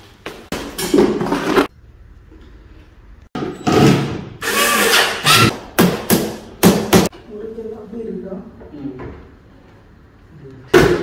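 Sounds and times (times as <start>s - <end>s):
tool noise: 3.4s - 7.1s.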